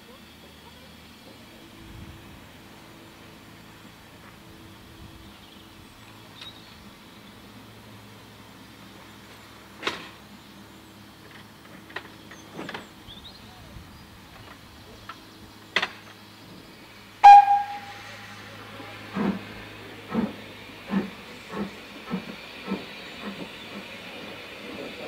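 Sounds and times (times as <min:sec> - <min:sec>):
steam hissing: 0:16.3 - 0:25.0
steam locomotive whistle toot: 0:17.2 - 0:19.3
locomotive exhaust beats: 0:17.2 - 0:25.0.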